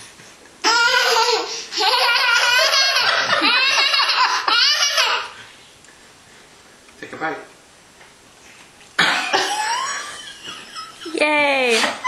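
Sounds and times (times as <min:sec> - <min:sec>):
toddler laughing loudly: 0:00.6 - 0:05.4.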